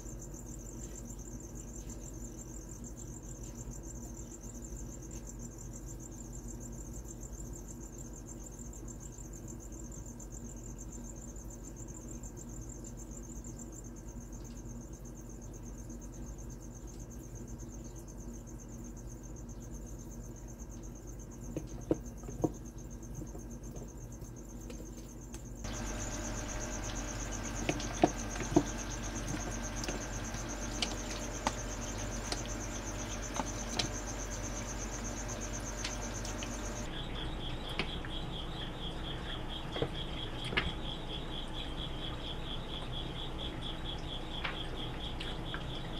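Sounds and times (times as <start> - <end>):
low hum: 25.7 - 37.4.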